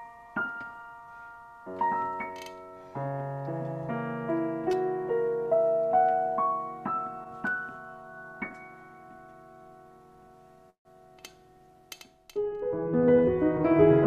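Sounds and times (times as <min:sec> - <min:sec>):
slow digital piano piece: 0:00.0 - 0:14.0.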